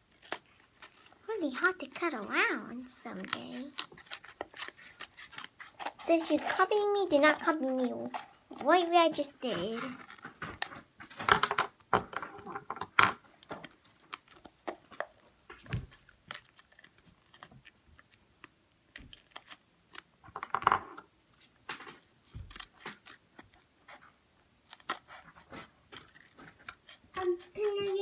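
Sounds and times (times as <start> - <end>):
scissors snipping paper: 0.0 - 10.8, 22.5 - 28.0.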